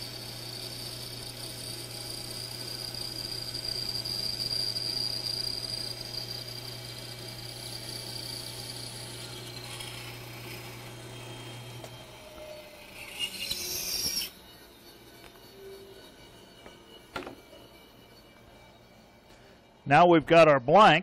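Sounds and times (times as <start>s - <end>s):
bandsaw cutting wood: 0.0s - 19.5s.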